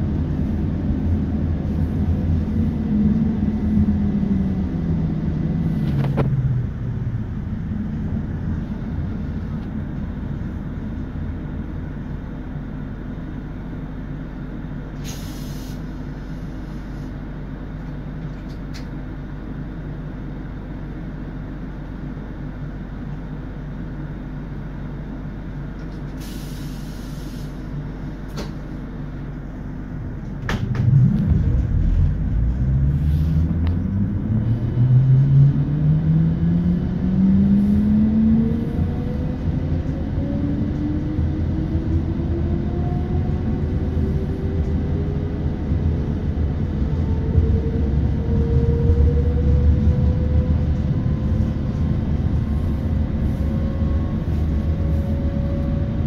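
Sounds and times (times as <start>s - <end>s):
train low hum: 0.0s - 56.0s
compressed air hisses: 15.0s - 16.4s, 26.2s - 27.6s.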